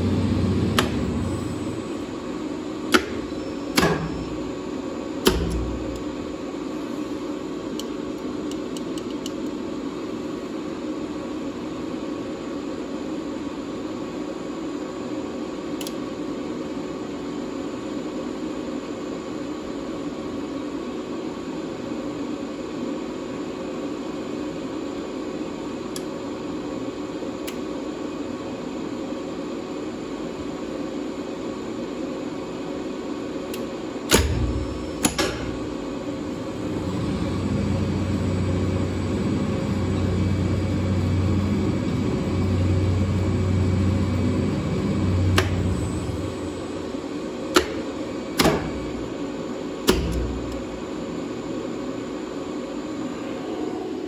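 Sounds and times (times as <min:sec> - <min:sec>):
machine room hum and hiss: 0:00.0 - 0:54.0
loud clunk of lift controller: 0:34.1 - 0:35.6.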